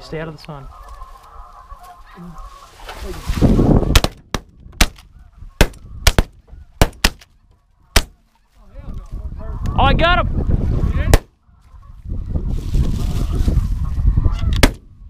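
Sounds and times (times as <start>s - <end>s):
grass cover rustling: 0.0s - 4.2s, 4.8s - 9.4s, 11.5s - 14.3s
geese calling: 0.0s - 15.0s
shotguns firing: 3.9s - 5.0s.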